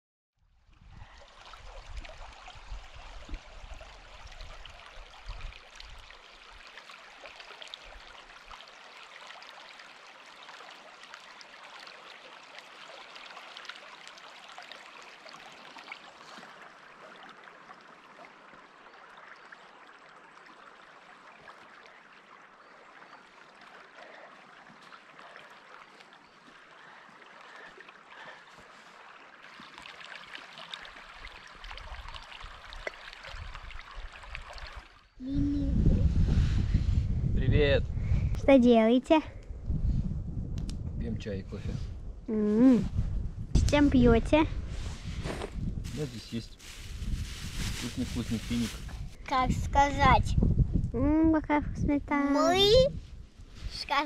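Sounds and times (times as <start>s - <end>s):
river water flowing: 0.9s - 35.2s
wind bumps on microphone: 35.2s - 38.6s, 39.3s - 54.0s.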